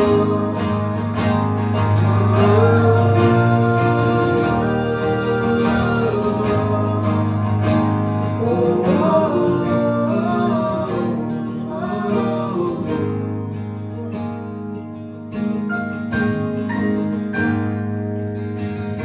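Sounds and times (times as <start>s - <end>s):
woman and man singing: 0.0s - 13.4s
acoustic guitars strumming: 0.0s - 19.0s.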